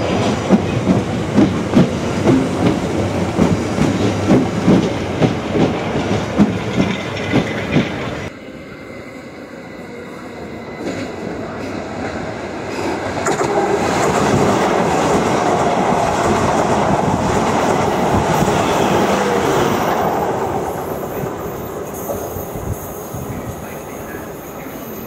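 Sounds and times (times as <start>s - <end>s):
electric train passing: 0.0s - 25.0s.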